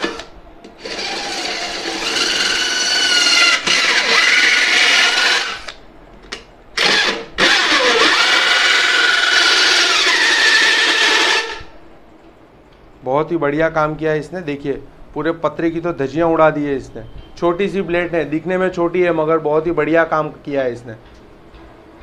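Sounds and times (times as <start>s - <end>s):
drill saw blade screeching on metal: 0.8s - 5.7s, 6.8s - 11.6s.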